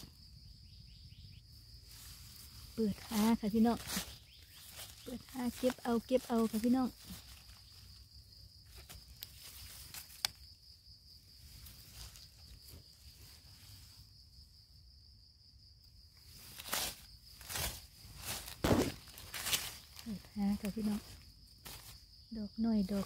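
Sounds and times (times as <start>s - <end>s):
insect drone: 0.0s - 23.0s
hands rustling dry leaves: 1.7s - 14.4s, 16.2s - 23.0s.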